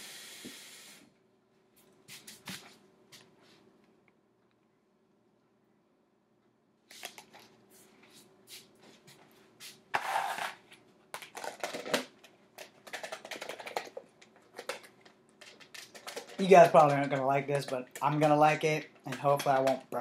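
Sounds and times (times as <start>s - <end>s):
container being shaken: 10.0s - 10.6s, 11.2s - 20.0s
plastic containers clicking and rattling: 11.1s - 20.0s.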